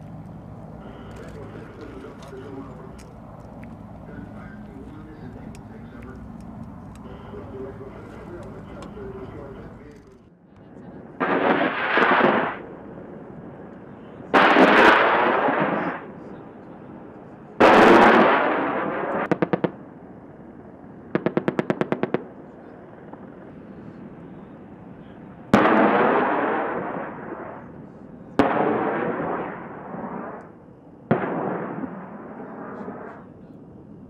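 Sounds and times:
explosion blasts with rumble: 11.0s - 16.1s, 17.6s - 19.8s, 25.4s - 27.7s, 28.4s - 30.4s, 31.1s - 33.2s
rapid cannon fire: 11.2s - 12.7s, 14.3s - 16.1s, 17.6s - 19.9s, 21.1s - 22.4s, 25.5s - 27.7s, 28.4s - 30.4s, 31.1s - 33.3s.

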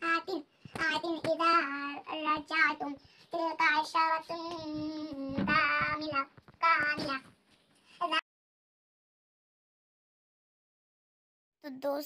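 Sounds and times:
girl chanting melodically: 0.0s - 7.3s.

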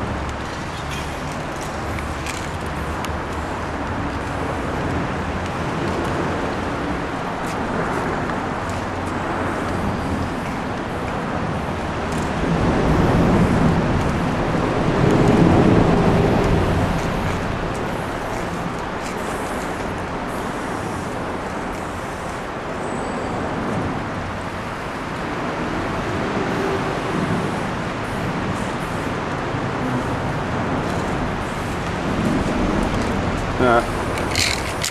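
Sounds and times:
road traffic noise: 0.0s - 34.9s.

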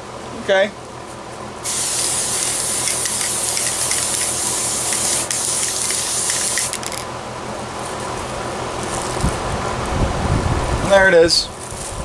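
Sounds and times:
spray can hissing: 1.6s - 7.0s.

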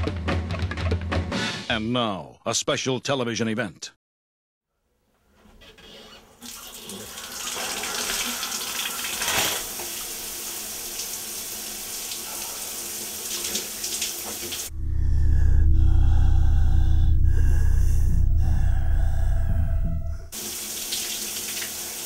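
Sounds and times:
shower water spraying: 6.4s - 14.7s, 20.4s - 22.0s
low droning hum: 14.7s - 20.4s.

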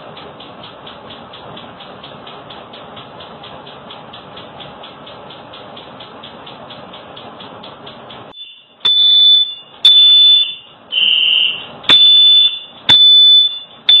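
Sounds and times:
smoke alarm shrill beeps: 8.3s - 14.0s.

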